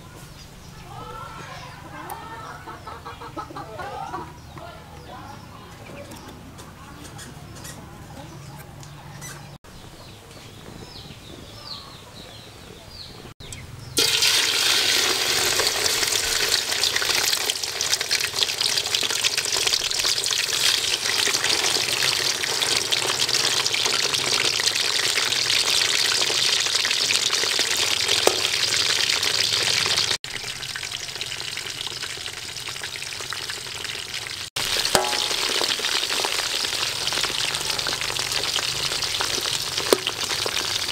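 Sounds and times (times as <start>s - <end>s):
fish sizzling in hot oil: 14.0s - 40.9s.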